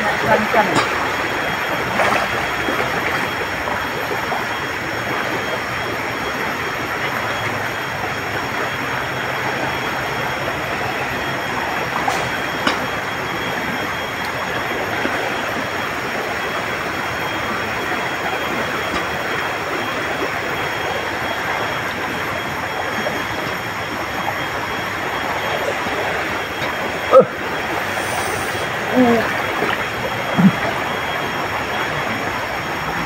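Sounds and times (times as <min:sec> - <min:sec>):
river rushing: 0:00.0 - 0:12.8
faint high steady tone: 0:00.0 - 0:33.0.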